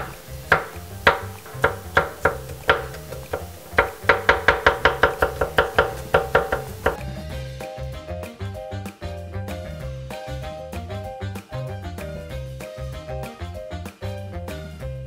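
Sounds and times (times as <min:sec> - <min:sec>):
knife chopping on wooden board: 0:00.0 - 0:07.0
background music: 0:00.0 - 0:15.0.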